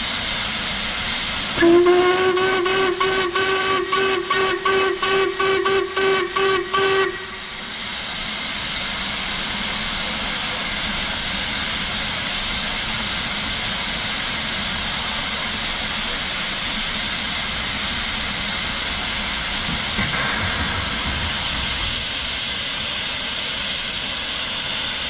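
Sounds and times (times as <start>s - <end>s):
steam hissing loudly: 0.0s - 25.0s
brief knock: 19.7s - 21.9s.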